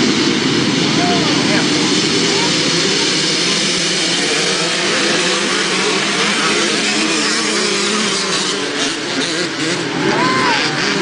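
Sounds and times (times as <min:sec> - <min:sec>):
dirt bike engines revving: 0:00.0 - 0:11.0.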